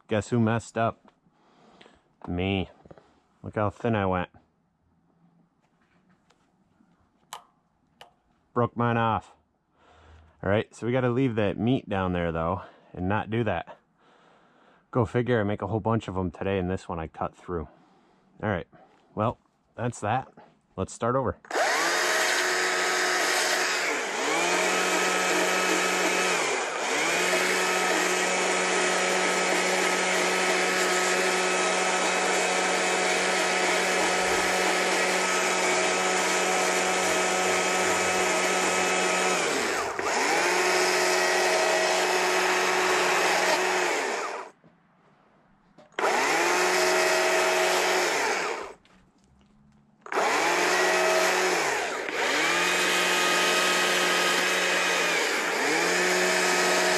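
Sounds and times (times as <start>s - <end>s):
chainsaw cutting log: 21.5s - 44.6s, 46.0s - 48.8s, 50.0s - 56.9s.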